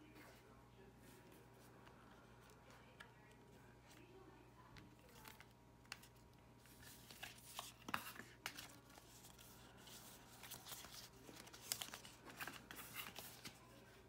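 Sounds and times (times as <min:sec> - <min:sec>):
paper cards rustling and sliding: 0:05.0 - 0:14.0.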